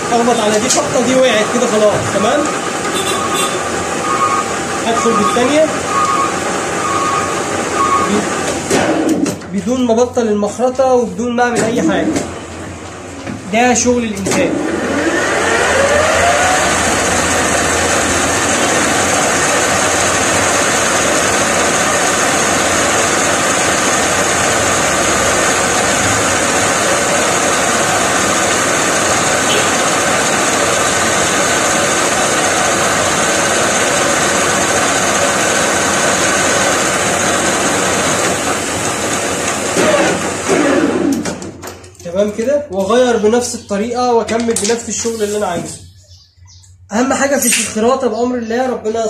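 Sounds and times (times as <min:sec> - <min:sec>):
metal lathe whirring: 0:00.0 - 0:08.5, 0:14.5 - 0:41.3.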